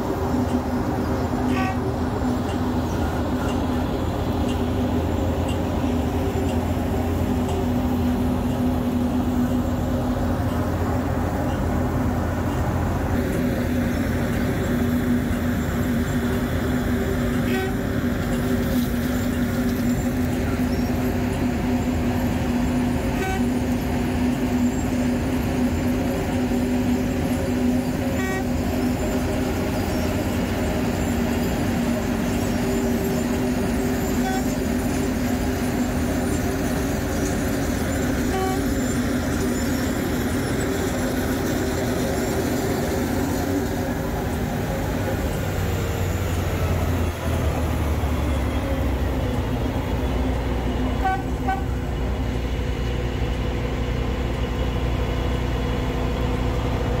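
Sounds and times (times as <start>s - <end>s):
construction machinery engines droning: 0.0s - 57.0s
short horn toots: 51.0s - 51.8s.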